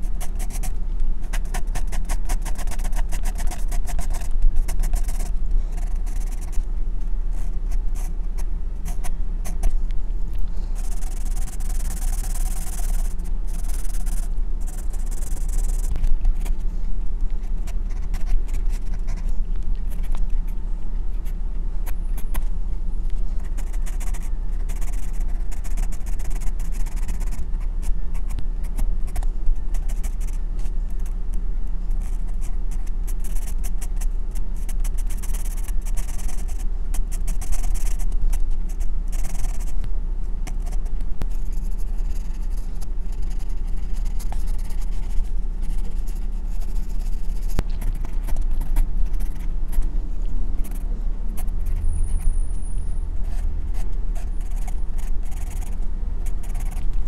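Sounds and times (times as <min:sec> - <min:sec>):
pencil scratching on paper: 0:00.0 - 0:06.6, 0:10.8 - 0:16.6, 0:17.4 - 0:20.2, 0:23.4 - 0:30.4, 0:32.0 - 0:39.8, 0:40.5 - 0:49.9, 0:53.2 - 0:57.0
low hum: 0:00.0 - 0:57.0.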